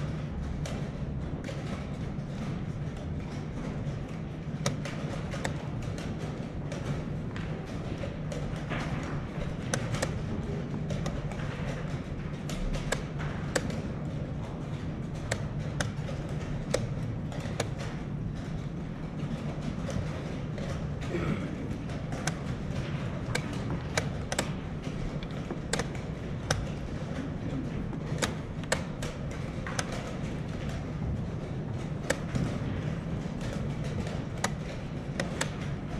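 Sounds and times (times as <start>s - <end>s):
low hum of hall: 0.0s - 35.9s
chess clock buttons slapped: 22.0s - 30.8s, 32.0s - 35.9s.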